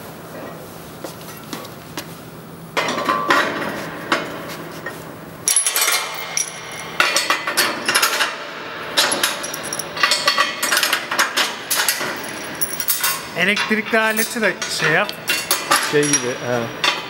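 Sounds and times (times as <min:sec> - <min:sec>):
metal plates clanking: 0:05.5 - 0:17.0.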